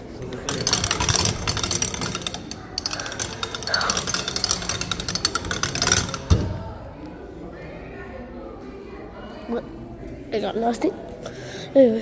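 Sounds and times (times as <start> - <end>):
hand crank gears clicking: 0.3 - 6.4.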